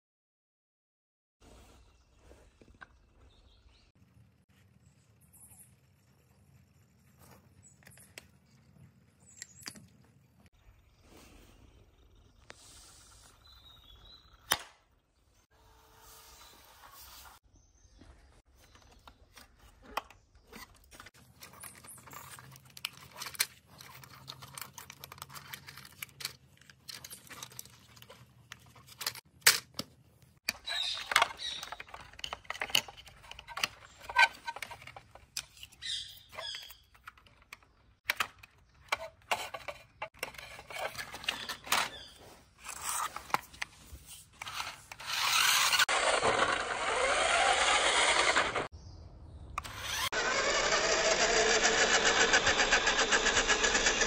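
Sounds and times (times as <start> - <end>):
plastic toy parts clicking and rattling: 19.8 - 43.7, 44.3 - 48.7, 49.6 - 54.0
toy motor whirring: 30.5 - 37.1, 44.4 - 48.7, 49.6 - 54.0.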